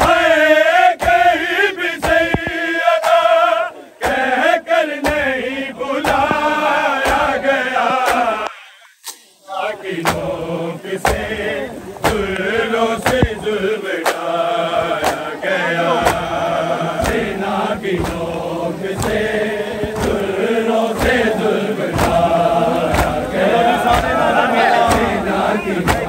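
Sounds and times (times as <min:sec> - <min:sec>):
men chanting in unison: 0:00.0 - 0:26.0
hands slapping chests: 0:00.9 - 0:01.4, 0:02.0 - 0:03.4, 0:04.0 - 0:05.4, 0:06.0 - 0:09.4, 0:10.0 - 0:10.3, 0:11.0 - 0:11.4, 0:12.0 - 0:15.3, 0:16.0 - 0:16.4, 0:17.0 - 0:26.0.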